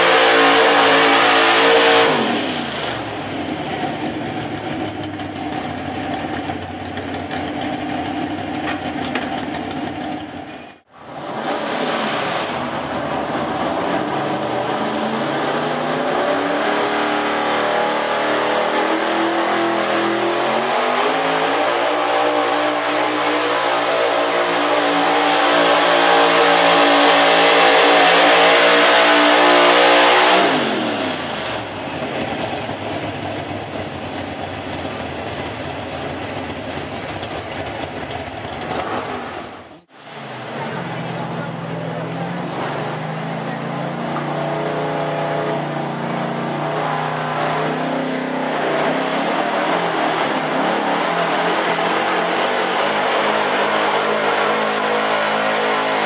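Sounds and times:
truck engine revving: 0.0s - 56.0s.

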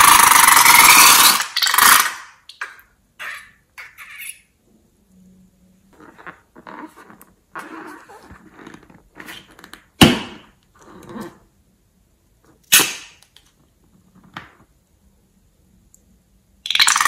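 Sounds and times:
rubbery rustles: 6.0s - 9.9s
balloon snapping: 12.7s - 13.4s.

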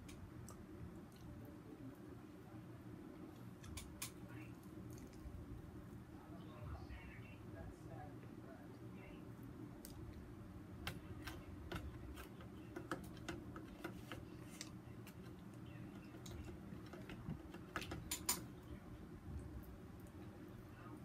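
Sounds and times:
steady low hum: 0.0s - 21.0s
chewing and mouth noises: 4.6s - 5.4s.

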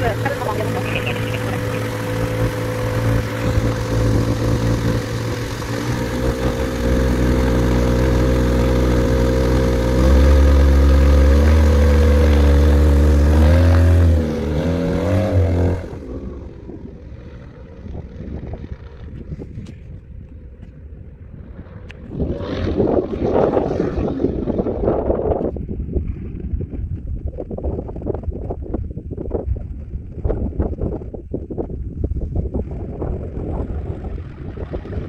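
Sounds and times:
wind on microphone: 0.0s - 8.0s, 10.0s - 35.0s
aircraft engine and propeller: 0.0s - 35.0s.

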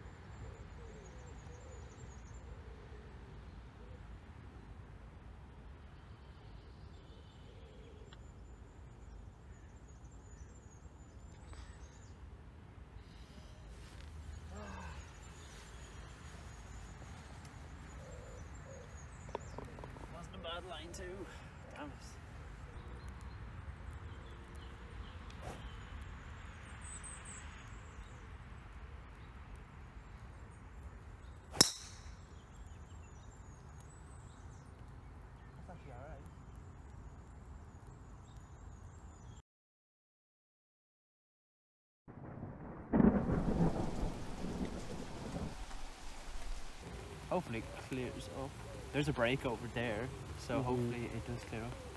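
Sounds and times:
faint bird chirps: 5.9s - 12.3s, 13.0s - 23.4s, 44.5s - 51.9s
golf club striking ball: 31.5s - 32.2s
wind buffeting microphone: 43.0s - 51.9s.

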